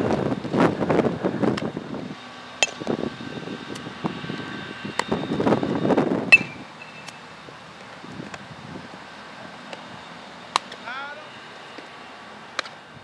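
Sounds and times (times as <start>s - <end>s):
wind buffeting microphone: 0.0s - 9.2s.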